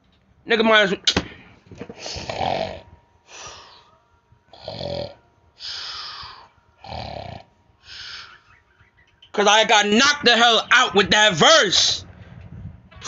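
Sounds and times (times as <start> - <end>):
man snoring: 2.1 - 3.8, 4.5 - 8.3.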